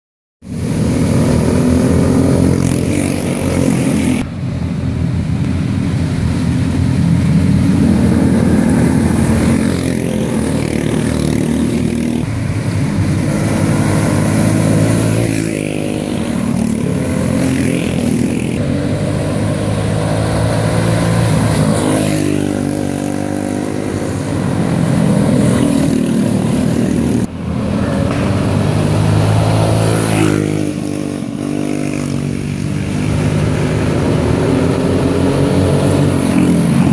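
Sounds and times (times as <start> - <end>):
go-kart engines racing past: 0.5 - 36.9.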